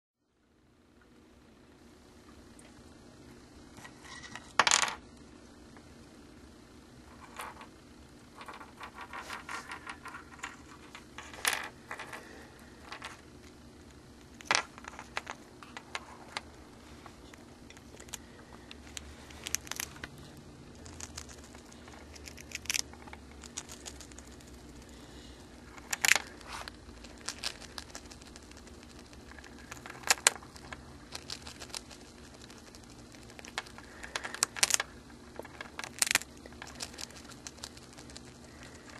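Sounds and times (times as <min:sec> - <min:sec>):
hamster crunching a cracker: 0:18.8 - 0:25.0, 0:25.6 - 0:38.9.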